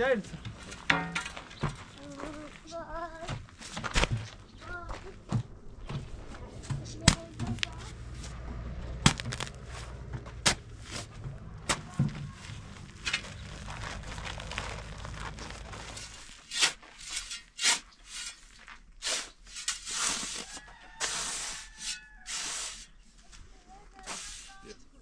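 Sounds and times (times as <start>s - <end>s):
shovel scraping sand and cement: 9.0s - 25.0s.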